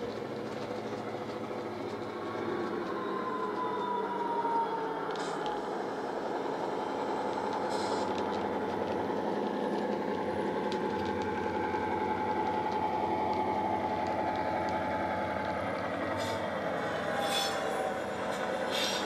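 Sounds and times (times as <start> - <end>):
model diesel engine sound: 0.0 - 19.0
steady high whine: 0.0 - 19.0
faint clicks: 7.2 - 16.6.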